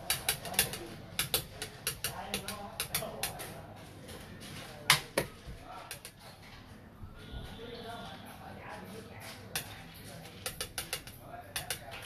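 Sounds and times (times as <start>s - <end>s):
game pieces clicking: 0.0s - 3.6s, 9.6s - 12.0s.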